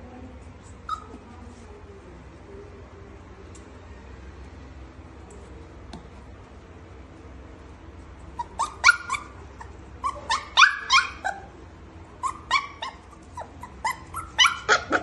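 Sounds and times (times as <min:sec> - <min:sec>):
puppy whimpering yips: 0:00.8 - 0:01.2, 0:08.4 - 0:11.5, 0:12.2 - 0:15.0.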